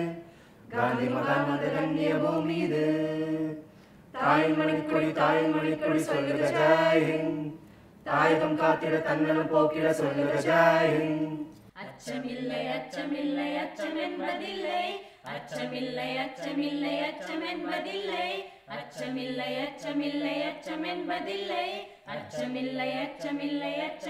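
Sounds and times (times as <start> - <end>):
group singing a cappella: 0.0 - 24.0.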